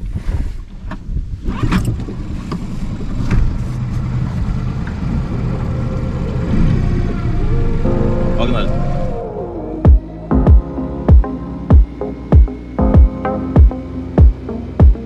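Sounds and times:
outboard motor drone: 0:01.7 - 0:15.0
music: 0:07.7 - 0:15.0.

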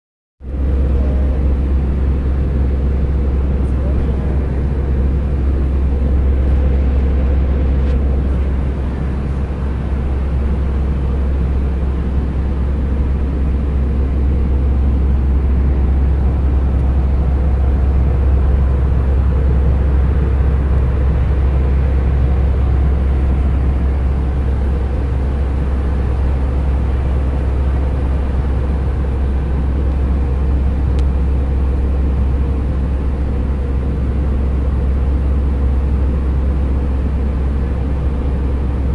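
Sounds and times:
airliner cabin rumble: 0:00.4 - 0:38.9.

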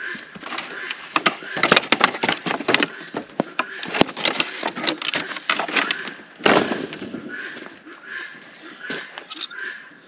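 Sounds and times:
wooden boards knocking and clattering: 0:00.2 - 0:07.7.

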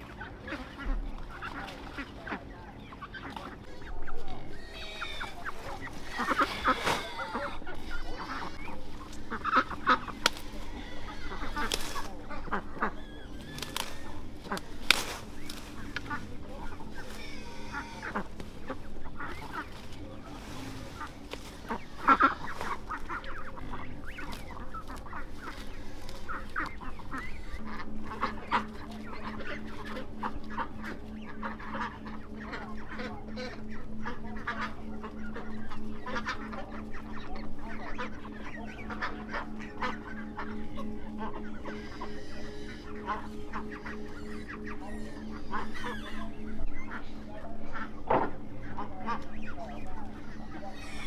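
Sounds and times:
poultry clucking: 0:00.0 - 0:51.0
steady low hum: 0:00.0 - 0:51.0.

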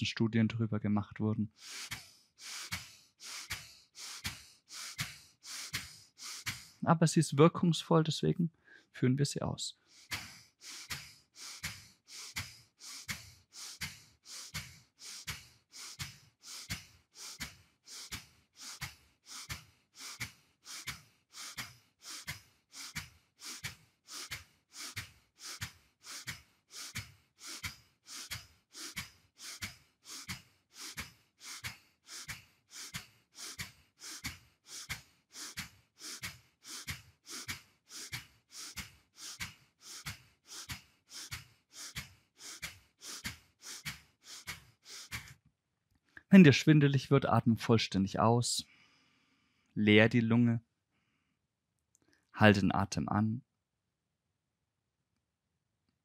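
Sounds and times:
man exhaling sharply through nose: 0:01.5 - 0:06.8, 0:09.8 - 0:45.4.

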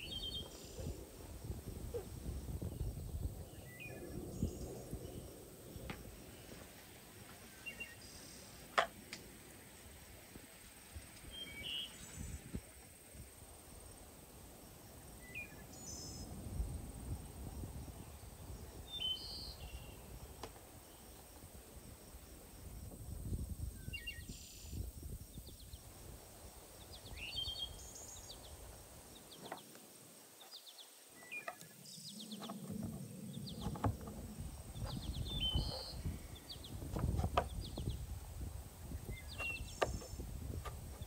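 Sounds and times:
birds chirping: 0:30.4 - 0:38.1, 0:38.9 - 0:41.0.

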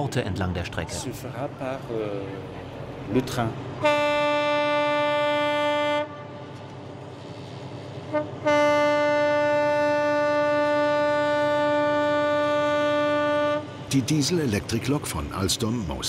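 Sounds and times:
locomotive horn blasts: 0:03.8 - 0:06.6, 0:08.1 - 0:13.8.

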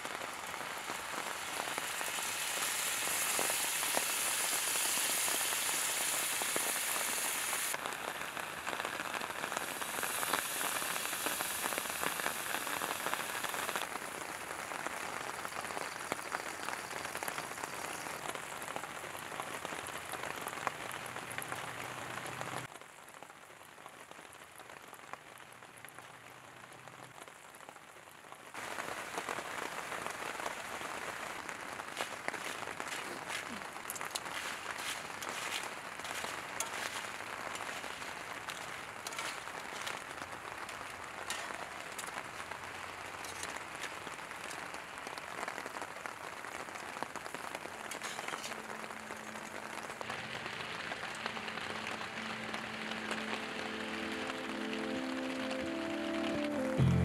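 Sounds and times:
sauce sizzling in a skillet: 0:00.0 - 0:20.5, 0:28.6 - 0:54.8.

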